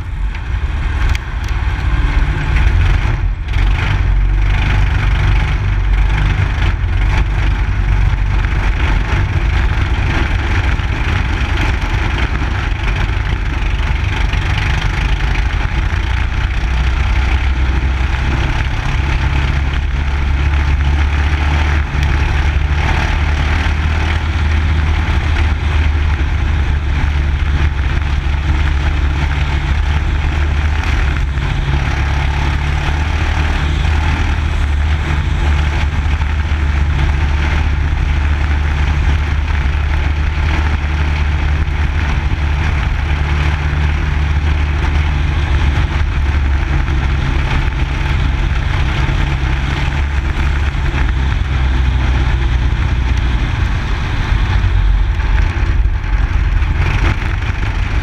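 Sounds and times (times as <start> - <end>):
race car engine running: 0.0 - 58.0.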